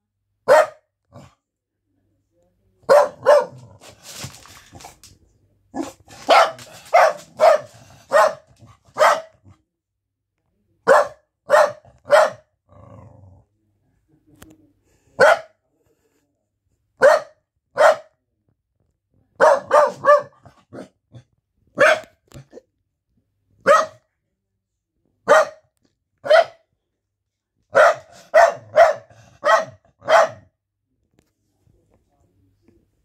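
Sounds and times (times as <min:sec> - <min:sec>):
dog barking: 0:00.4 - 0:01.3, 0:02.8 - 0:03.8, 0:05.8 - 0:09.6, 0:10.8 - 0:12.5, 0:15.2 - 0:15.6, 0:17.0 - 0:18.2, 0:19.4 - 0:21.0, 0:21.8 - 0:22.2, 0:23.6 - 0:24.1, 0:25.2 - 0:26.6, 0:27.7 - 0:30.5.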